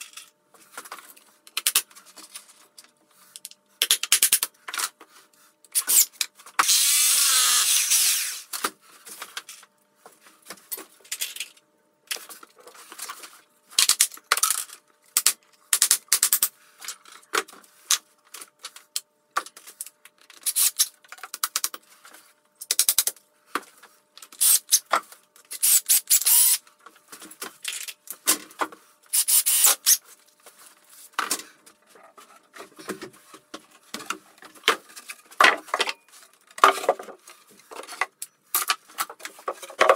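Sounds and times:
cordless drill running: 6.6 - 8.5, 25.6 - 26.6, 29.2 - 30.0.

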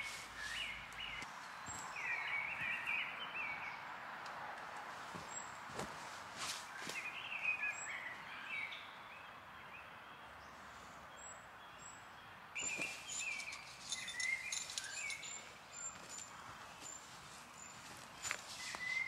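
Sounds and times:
small songbirds chirping: 0.0 - 4.2, 6.6 - 19.0
tent rustling and knocks: 12.6 - 14.9
footsteps on leaf litter: 15.9 - 19.0.

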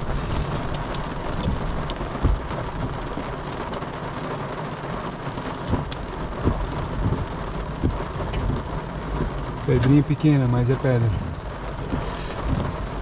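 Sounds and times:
hailstones ticking: 0.0 - 13.0
heavy rain on a car: 0.0 - 13.0
dull knocks: 1.4 - 2.6, 5.7 - 9.4.

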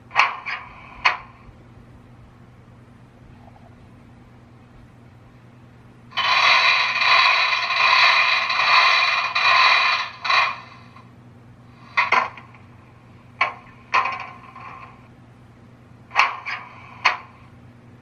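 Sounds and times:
faint steady hum: 0.0 - 18.0
model locomotive hissing blasts: 6.1 - 11.0.

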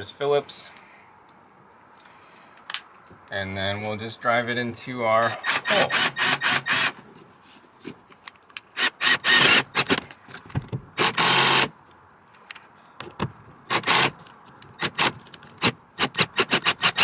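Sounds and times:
cordless drill driving screw: 5.4 - 7.0, 8.8 - 10.0, 11.0 - 11.7, 13.7 - 14.2, 14.8 - 17.0.

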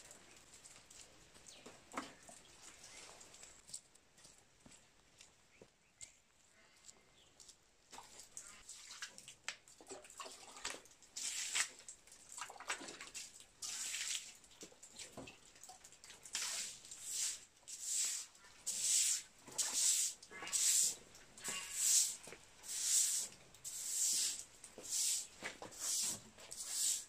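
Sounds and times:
water splashing onto concrete floor: 7.9 - 27.0.

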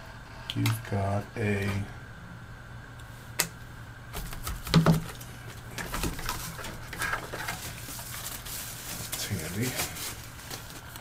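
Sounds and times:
faint electrical hum: 0.0 - 11.0
plastic parts clicking and rustling: 4.7 - 10.8.

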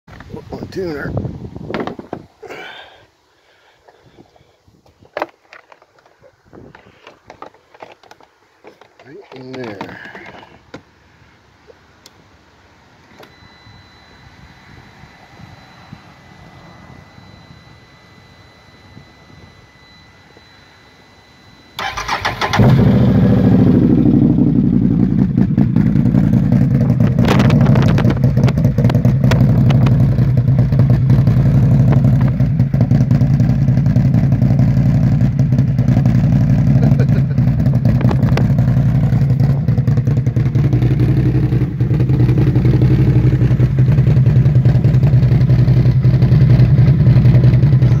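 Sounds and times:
atv engine starting and idling: 21.8 - 48.0.

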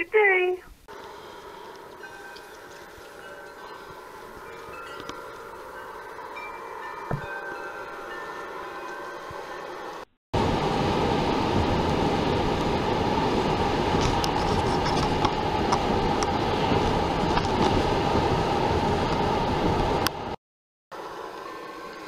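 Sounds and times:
car road and wind noise: 10.4 - 20.4.

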